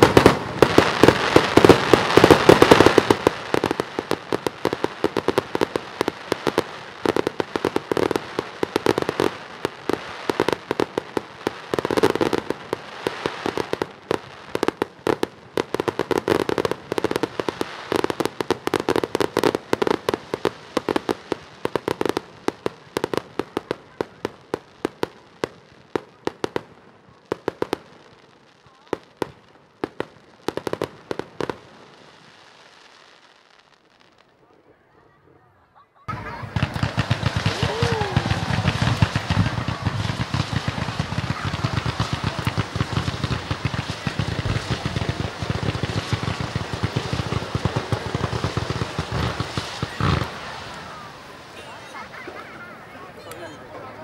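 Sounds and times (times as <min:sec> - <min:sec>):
fireworks bursting: 0:00.0 - 0:35.5, 0:36.1 - 0:54.0
crackling pops: 0:36.5 - 0:51.1.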